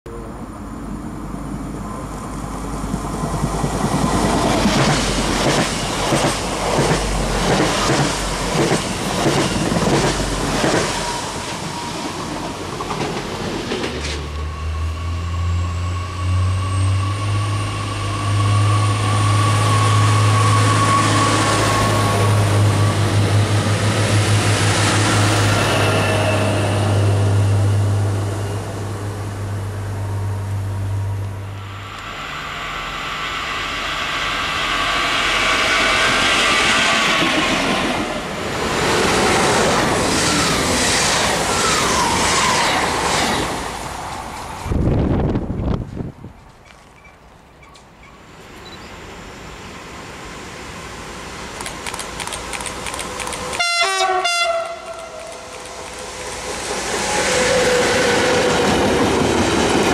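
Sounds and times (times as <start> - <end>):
electric train hum and whine: 0.1 - 59.9
train wheels clickety-clack: 2.8 - 14.3, 35.3 - 43.5, 51.6 - 53.7, 54.6 - 59.9.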